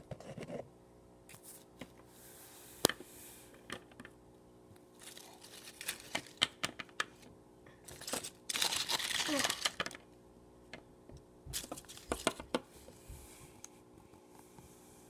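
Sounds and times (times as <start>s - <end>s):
faint steady hum: 0.0s - 15.0s
plastic toys clicking and rustling: 7.9s - 10.0s.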